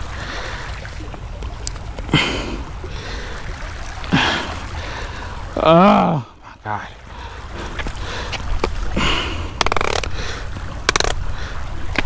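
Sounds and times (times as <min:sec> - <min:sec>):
man grunting with effort: 0:05.6 - 0:06.4.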